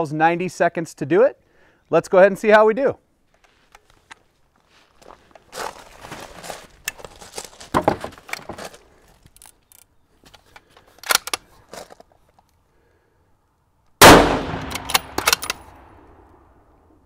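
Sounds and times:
rustling: 3.2s - 12.6s
footsteps on wood chips: 3.4s - 9.3s
sharp rifle clicks: 11.0s - 11.5s, 14.0s - 16.4s.

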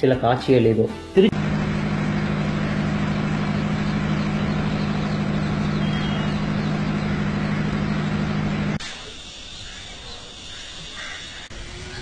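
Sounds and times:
engine running steadily: 1.3s - 8.8s.

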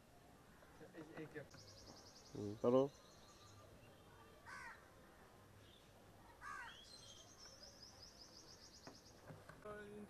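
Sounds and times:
bird chirps: 1.5s - 4.1s, 6.6s - 9.3s.

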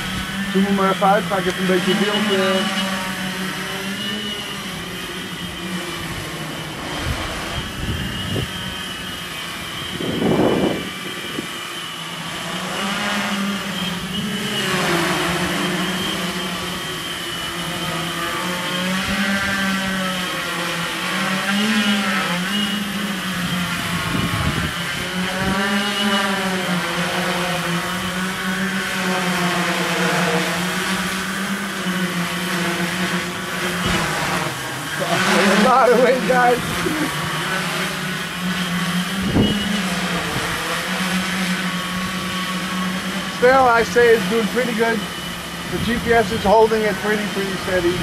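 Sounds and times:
drone propellers whirring: 0.0s - 48.0s
wind buffeting microphone: 6.8s - 11.6s, 23.3s - 25.8s, 39.0s - 40.7s.

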